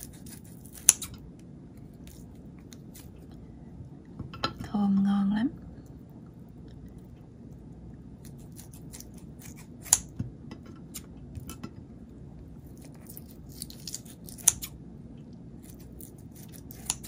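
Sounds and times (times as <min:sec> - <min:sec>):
scissors snipping: 0:00.0 - 0:01.2, 0:08.2 - 0:10.1, 0:15.6 - 0:17.0
scissor blades snapping: 0:08.6 - 0:10.1, 0:16.5 - 0:17.0.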